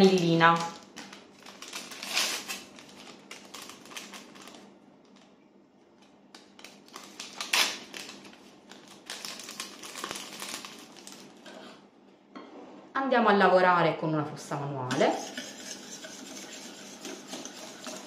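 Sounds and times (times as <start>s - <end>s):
paper sachet crinkling: 0.0s - 5.3s, 6.4s - 11.4s.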